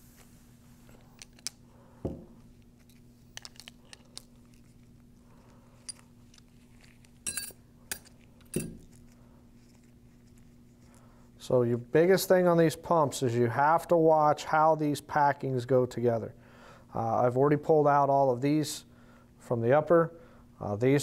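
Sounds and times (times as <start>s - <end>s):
steady low hum: 0.0s - 21.0s
metal parts clinking on workbench: 5.8s - 9.0s.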